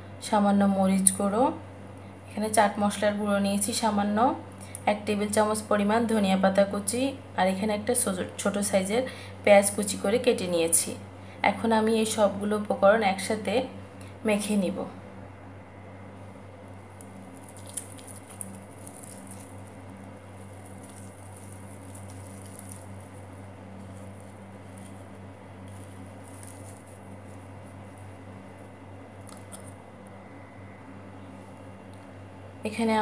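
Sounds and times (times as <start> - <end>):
low hum: 14.8 - 33.0
potatoes squishing by hand: 16.8 - 29.8.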